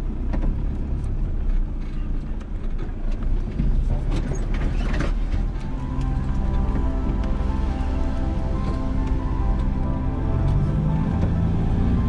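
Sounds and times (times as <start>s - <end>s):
vehicle rumble: 0.0s - 12.0s
background music: 5.0s - 12.0s.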